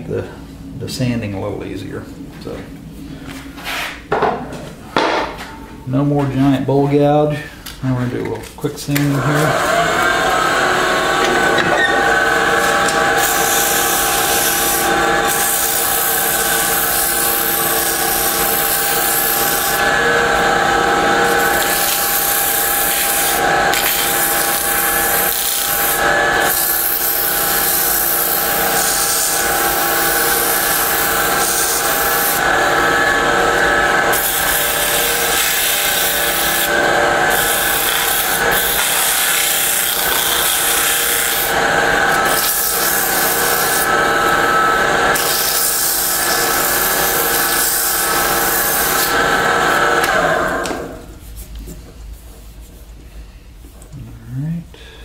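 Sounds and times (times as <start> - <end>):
lathe motor hum: 9.1 - 51.0.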